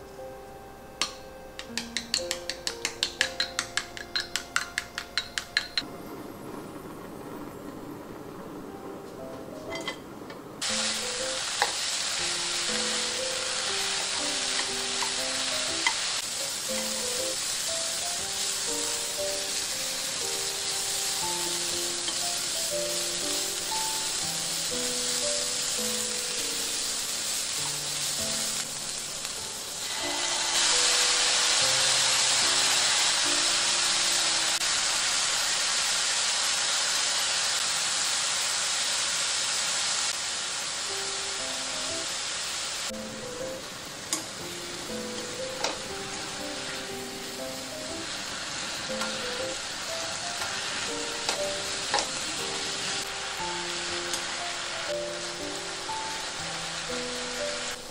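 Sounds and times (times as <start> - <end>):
light background music: 0.0 - 6.6, 7.9 - 34.6, 40.9 - 57.9
root sizzling in a frying pan: 1.0 - 10.0, 10.6 - 57.9.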